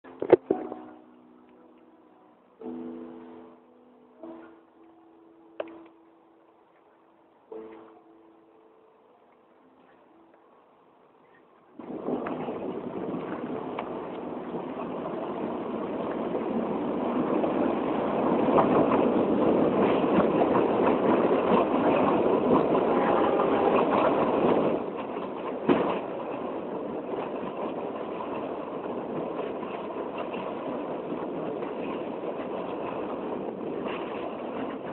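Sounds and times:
train wheels rumbling on rails: 0:11.6 - 0:34.9.

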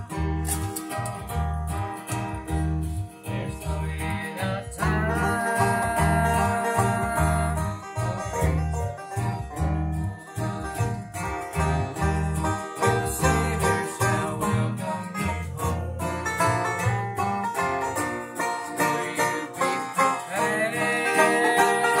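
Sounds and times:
acoustic guitar strumming: 0:00.0 - 0:22.0
upright bass plucking: 0:00.0 - 0:22.0.

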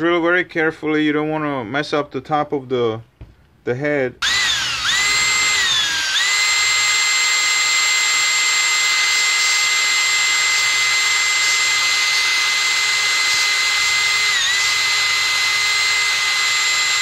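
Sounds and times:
electric drill whining: 0:04.2 - 0:17.0.

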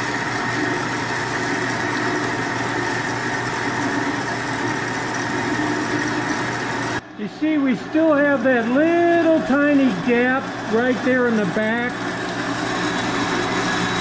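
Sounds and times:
bandsaw cutting steel: 0:00.0 - 0:14.0.

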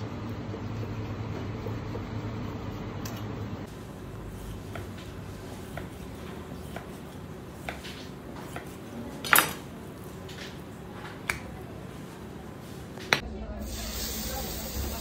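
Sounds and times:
steady low hum: 0:00.0 - 0:09.1.

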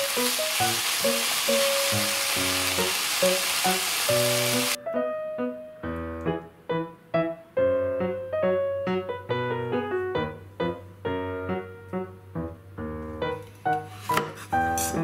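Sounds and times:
food sizzling in a frying pan: 0:00.0 - 0:04.8
piano music: 0:00.0 - 0:15.0.

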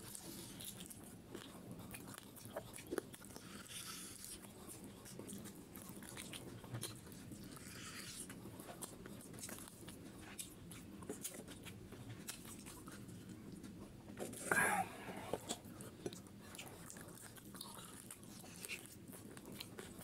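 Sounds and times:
chewing and mouth smacks: 0:00.0 - 0:20.0.

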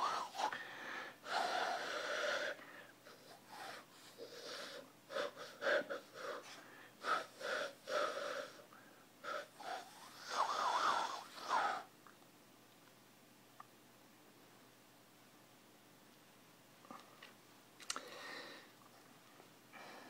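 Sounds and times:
hand whistling: 0:09.3 - 0:11.9.

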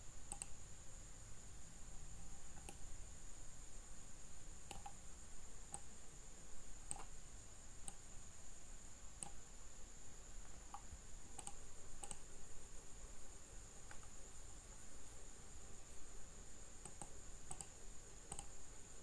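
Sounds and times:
faint high-pitched whine: 0:00.0 - 0:19.0
computer mouse clicks: 0:00.3 - 0:00.6, 0:02.2 - 0:02.9, 0:04.6 - 0:05.0, 0:05.7 - 0:05.9, 0:06.9 - 0:07.2, 0:07.8 - 0:08.1, 0:09.2 - 0:09.4, 0:10.6 - 0:12.3, 0:13.8 - 0:14.2, 0:16.8 - 0:18.6.

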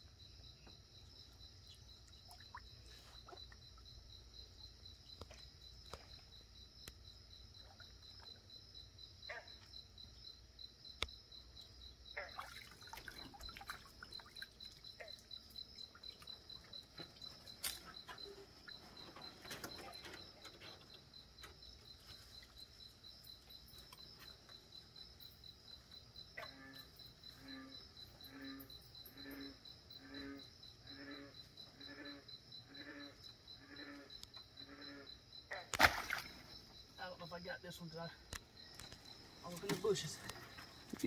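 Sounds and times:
frog croaking: 0:00.2 - 0:10.3, 0:11.1 - 0:22.4, 0:26.1 - 0:41.0
insect trilling: 0:11.3 - 0:41.0.

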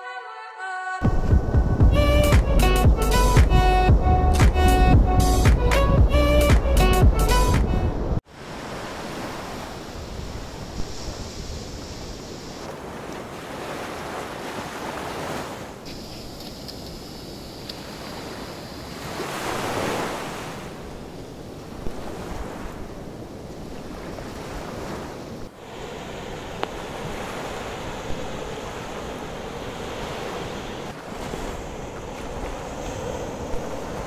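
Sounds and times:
sea surf washing onto shore: 0:07.6 - 0:34.0
wind on the microphone: 0:09.0 - 0:14.2, 0:20.6 - 0:34.0.

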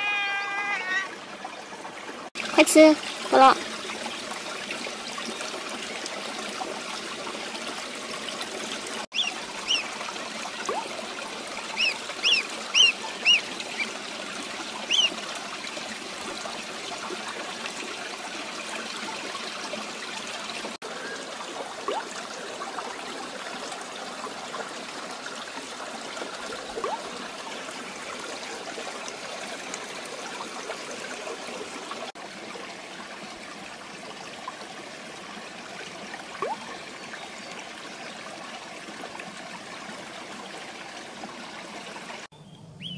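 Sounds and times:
water trickling: 0:00.0 - 0:42.3
duckling peeps: 0:09.2 - 0:09.9, 0:11.7 - 0:13.9, 0:14.9 - 0:15.1.

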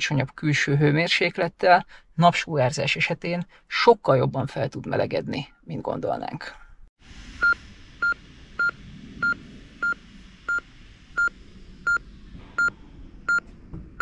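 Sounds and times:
heart monitor pulse beeps: 0:07.4 - 0:10.6, 0:11.2 - 0:14.0.

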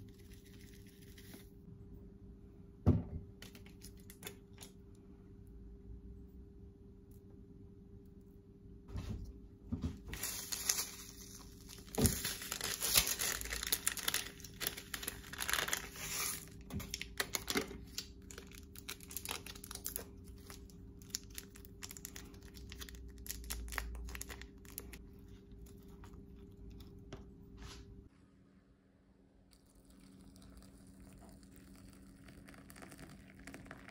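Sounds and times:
plastic sachets crinkling: 0:10.1 - 0:25.0.

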